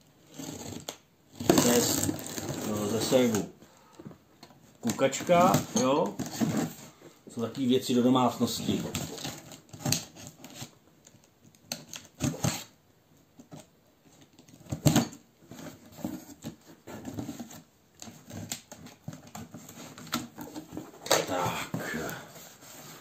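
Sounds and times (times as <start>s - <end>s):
cardboard rubbing: 15.4s - 23.0s.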